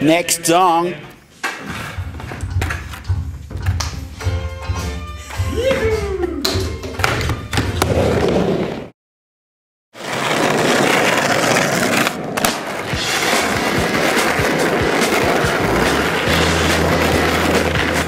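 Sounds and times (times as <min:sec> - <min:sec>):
skateboard wheels rolling: 0:07.1 - 0:08.9, 0:10.0 - 0:18.0
skateboard clacks: 0:10.4 - 0:18.0.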